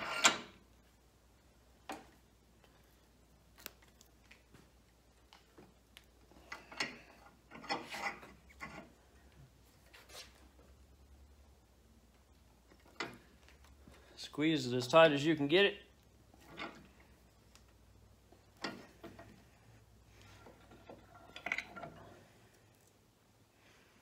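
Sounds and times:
vise screw creaking and rasping: 0.0 - 0.6, 6.4 - 9.0, 20.1 - 22.2.

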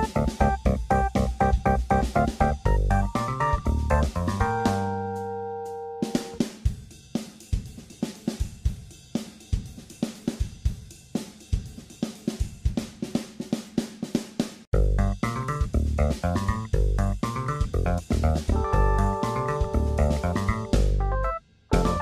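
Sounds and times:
held chord: 0.0 - 6.4
drum kit beat: 0.0 - 22.0.

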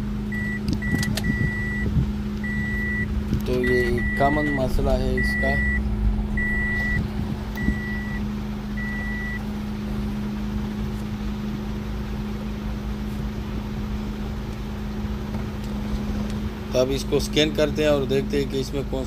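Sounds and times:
car engine humming: 0.0 - 19.0
dashboard warning chime: 0.3 - 5.8, 6.4 - 7.0, 7.6 - 9.4.

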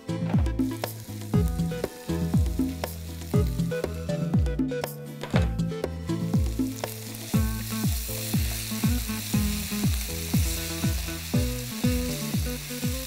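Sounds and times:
background music with deep beat: 0.0 - 13.0
vegetables sizzling in a pan: 0.6 - 4.0, 6.2 - 13.0.

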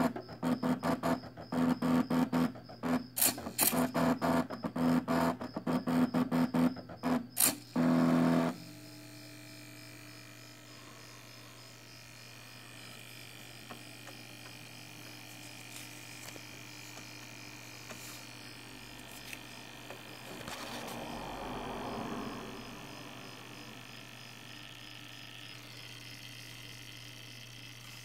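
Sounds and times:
faint electrical hum: 7.4 - 28.0
stepper motors whining: 7.4 - 28.0.

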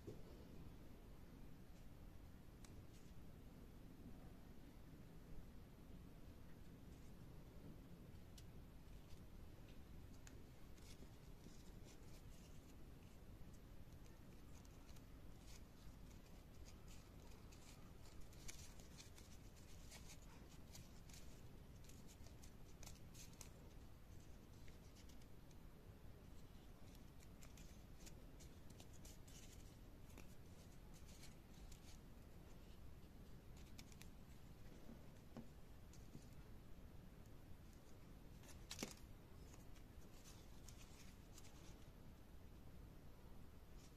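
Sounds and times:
low background hum: 0.0 - 43.9
paper crinkling and rustling: 10.1 - 25.3, 26.3 - 32.8, 33.5 - 36.4, 37.7 - 41.9.

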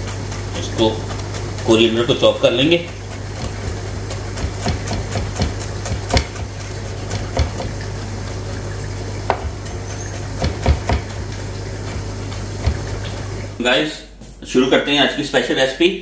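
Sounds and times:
knife chopping on plastic board: 0.0 - 7.8, 9.2 - 13.1
steady low hum: 0.0 - 16.0.

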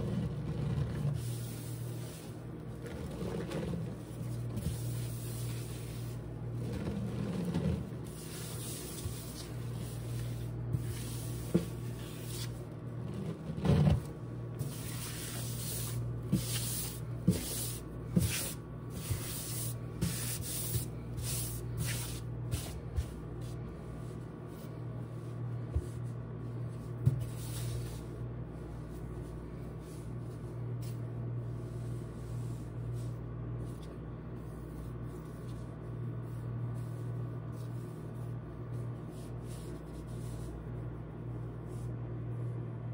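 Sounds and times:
powder rubbed in a sponge: 0.0 - 13.9, 26.5 - 42.0.

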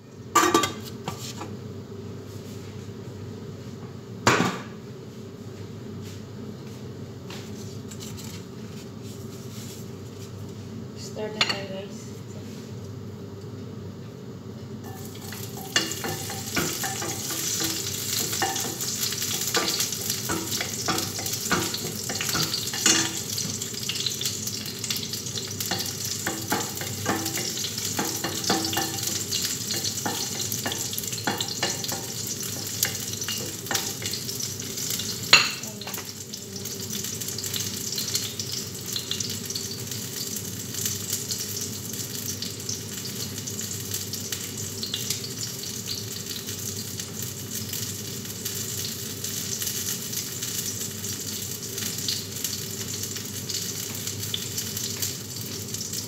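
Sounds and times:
food sizzling in a frying pan: 14.8 - 56.0
spatula knocking and scraping pan: 14.9 - 23.6, 25.6 - 34.2.

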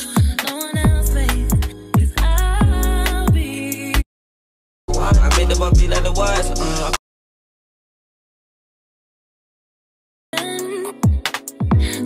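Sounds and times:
hi-hat ticks: 0.0 - 0.8
hip hop music with vocals: 0.0 - 4.0, 4.9 - 7.0, 10.4 - 12.0.

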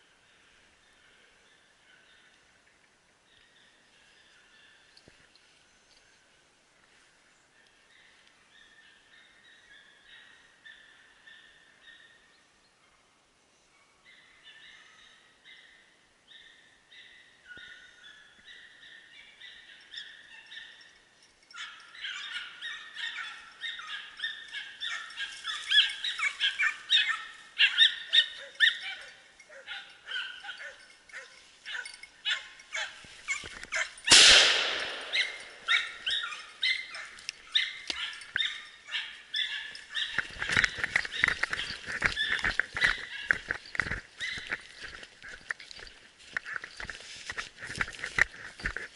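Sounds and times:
hounds baying: 17.6 - 46.9
footsteps through dry grass: 24.7 - 28.4, 32.5 - 48.9
loud gunshot: 34.1 - 35.7.

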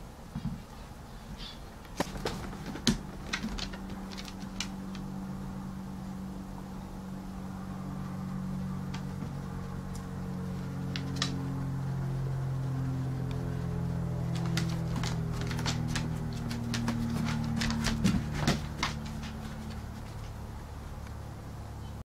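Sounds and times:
dog claws on hardwood floor: 1.9 - 5.1, 14.2 - 20.4.

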